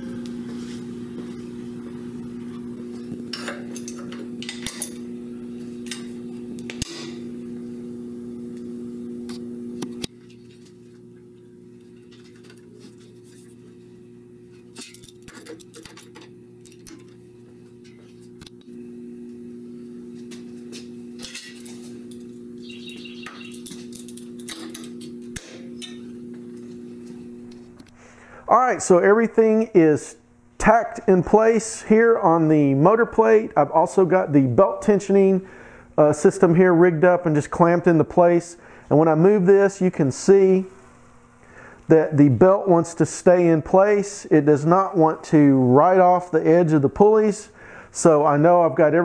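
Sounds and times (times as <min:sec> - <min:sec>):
low hum: 0:00.0 - 0:29.0
steel parts clinking: 0:14.7 - 0:17.1.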